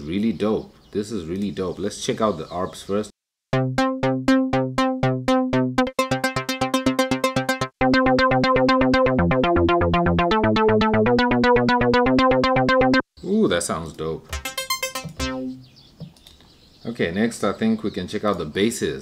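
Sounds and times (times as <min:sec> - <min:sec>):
arpeggiated synthesizer: 0:03.5 - 0:13.1, 0:14.3 - 0:15.8
synth bass line: 0:03.5 - 0:13.1, 0:14.3 - 0:15.7.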